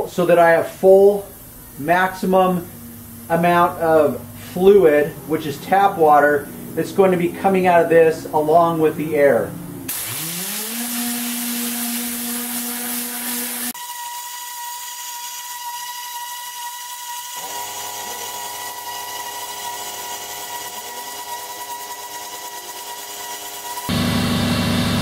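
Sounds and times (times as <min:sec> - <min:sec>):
compressed air hissing: 0:00.0 - 0:05.4, 0:09.9 - 0:13.8
air compressor motor humming: 0:09.9 - 0:13.8, 0:23.9 - 0:25.0.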